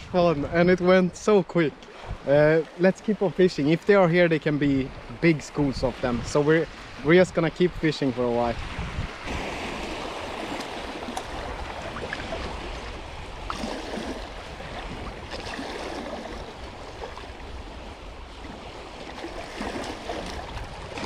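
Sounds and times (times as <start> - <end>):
small waves breaking on shore: 0.0 - 21.0.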